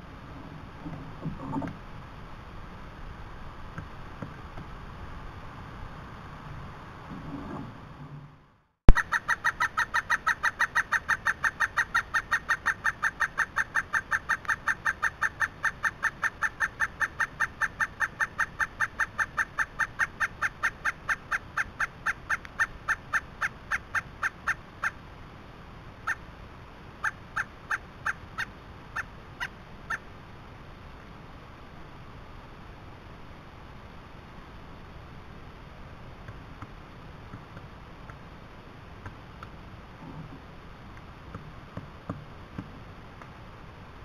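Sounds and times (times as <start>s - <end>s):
woodpecker calling: 8.9s - 25.0s, 27.0s - 30.1s.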